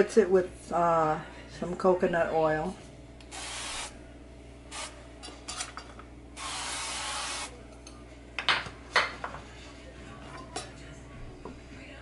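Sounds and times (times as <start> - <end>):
spray can hissing: 3.3 - 3.9, 6.4 - 7.5.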